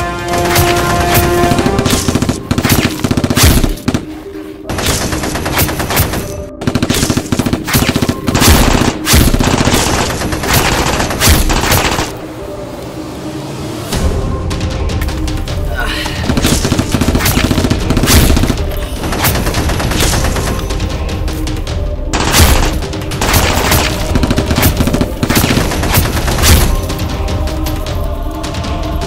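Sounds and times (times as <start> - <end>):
background music: 0.0 - 29.0
rapid automatic gunfire: 4.7 - 12.1, 22.1 - 26.8.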